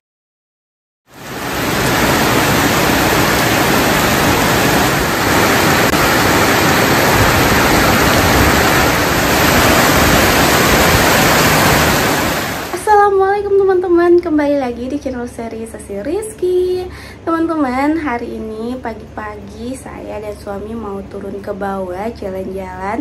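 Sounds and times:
heavy rain pouring: 0:01.1 - 0:12.9.

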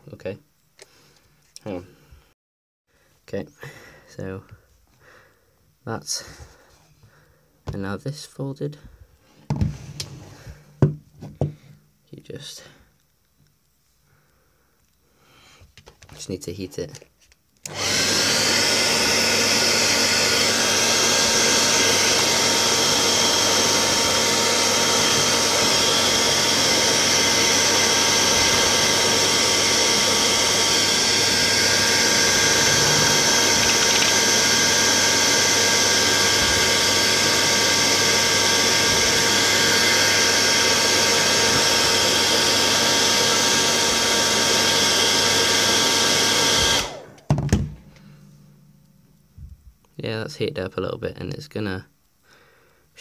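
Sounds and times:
hairdryer motor whirring: 0:17.6 - 0:47.7
hairdryer air rushing: 0:17.7 - 0:47.3.

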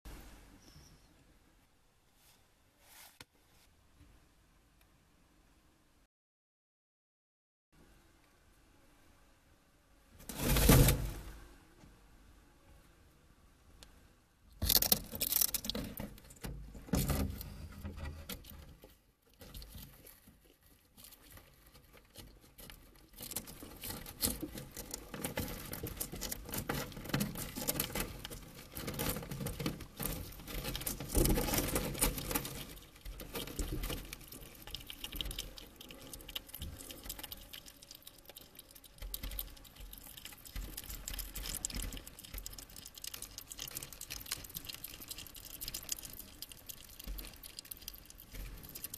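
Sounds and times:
hedgehog chewing a snail: 0:14.6 - 0:48.9.

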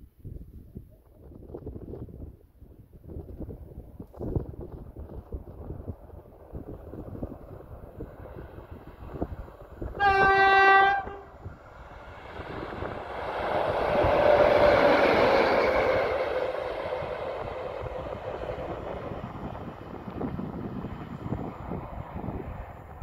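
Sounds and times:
locomotive passing: 0:04.8 - 0:23.0
locomotive horn: 0:10.0 - 0:11.4.

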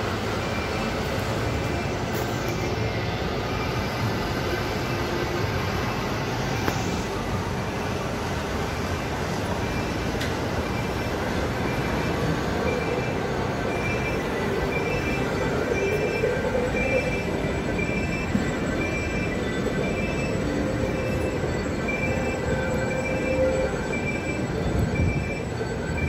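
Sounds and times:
traffic rumble: 0:00.0 - 0:26.0.

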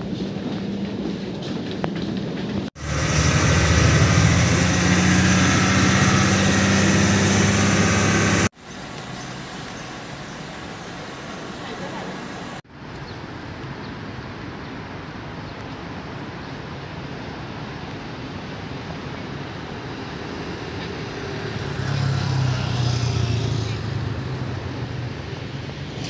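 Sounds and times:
city street traffic: 0:00.0 - 0:26.0
heavy vehicle engine: 0:02.7 - 0:08.5.

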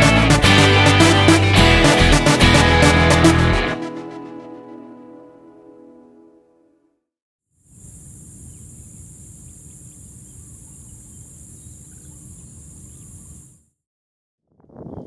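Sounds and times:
insect trill: 0:07.7 - 0:13.6
faint bird chirps: 0:07.8 - 0:13.6.

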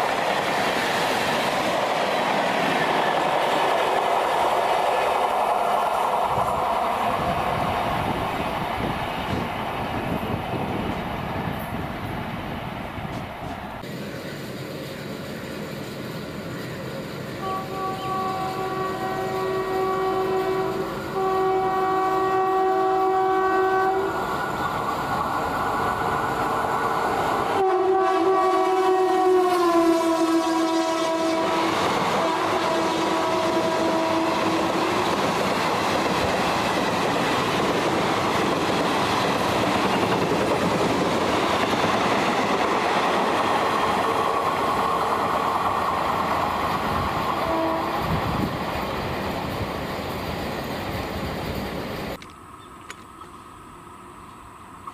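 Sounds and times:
train rumbling on rails: 0:00.0 - 0:54.9
train air horn blasts: 0:17.4 - 0:24.2, 0:27.5 - 0:35.1, 0:47.3 - 0:48.4.

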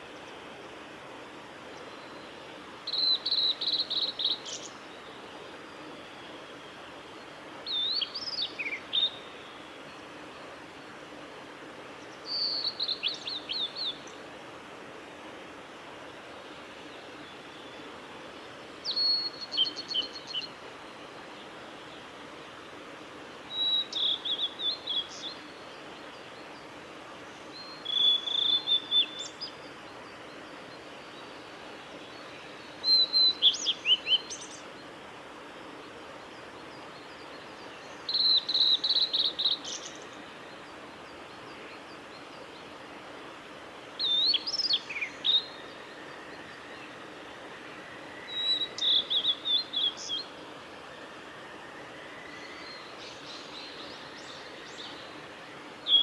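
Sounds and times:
bird singing whistles and trills: 0:02.9 - 0:04.8, 0:07.7 - 0:09.4, 0:12.3 - 0:14.2, 0:18.8 - 0:20.5, 0:23.5 - 0:25.4, 0:27.6 - 0:29.6, 0:32.8 - 0:34.6, 0:37.0 - 0:40.1, 0:44.0 - 0:46.9, 0:48.2 - 0:50.3.

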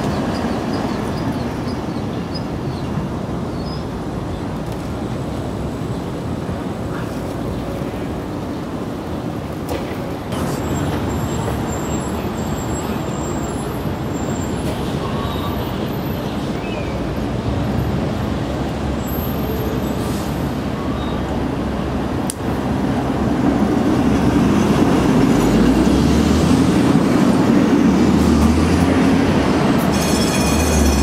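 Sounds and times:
city street traffic: 0:00.0 - 0:31.0
streetcar rumbling on rails: 0:00.0 - 0:31.0.

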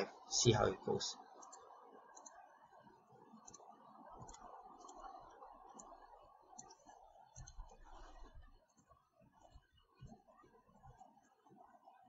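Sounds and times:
faint computer mouse clicks: 0:01.4 - 0:02.4, 0:03.4 - 0:05.1, 0:05.7 - 0:08.1.

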